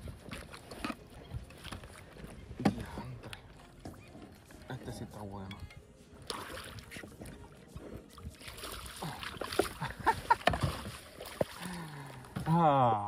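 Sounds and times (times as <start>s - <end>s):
fish thrashing and splashing: 6.2s - 12.4s.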